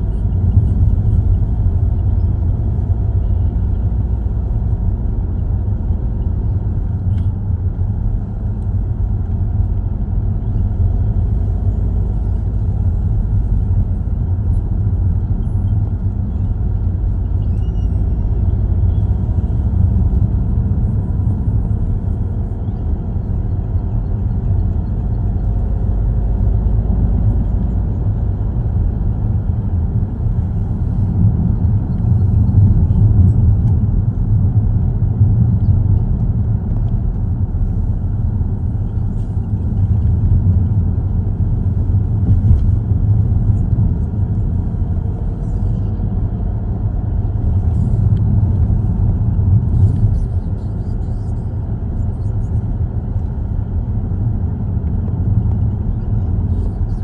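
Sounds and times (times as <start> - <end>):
car road and engine rumble: 0.0 - 57.0.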